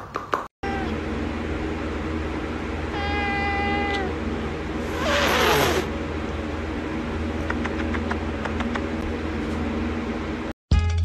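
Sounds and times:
steady hum: 0.6s - 10.6s
cat hissing: 4.8s - 5.9s.

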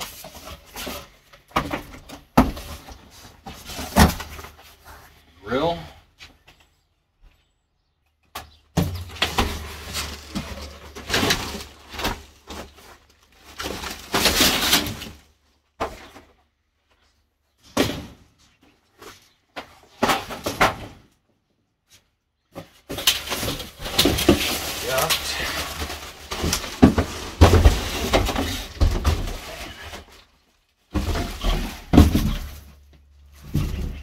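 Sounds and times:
foil duct crinkling: 23.6s - 27.4s.

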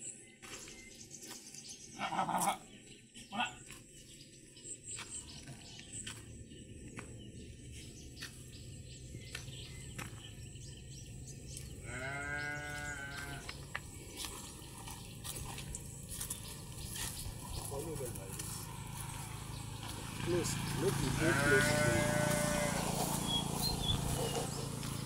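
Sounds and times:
sheep bleating: 11.8s - 13.5s, 21.0s - 22.9s.

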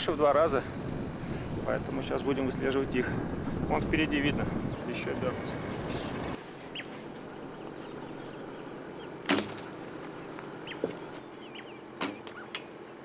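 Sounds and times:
bird chirps: 4.0s - 13.0s.

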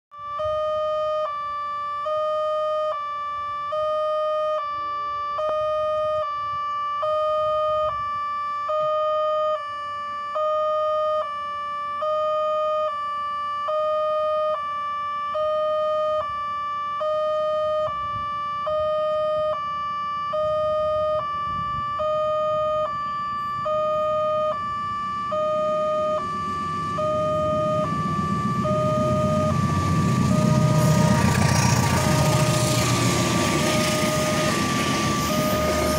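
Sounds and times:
level crossing two-tone alarm: 0.2s - 35.9s
rumble of approaching train: 23.3s - 35.9s.

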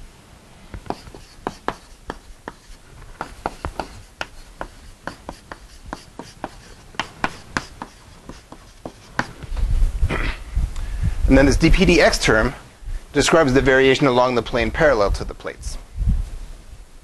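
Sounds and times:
chalk tapping and scratching: 0.7s - 9.6s.

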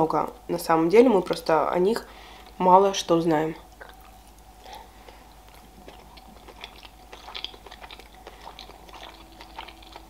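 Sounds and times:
chewing with wet mouth clicks: 3.7s - 10.0s.

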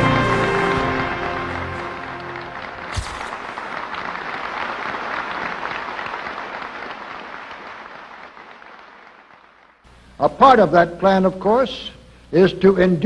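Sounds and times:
audience applauding: 1.1s - 9.8s
sharp knock: 2.9s - 3.4s.

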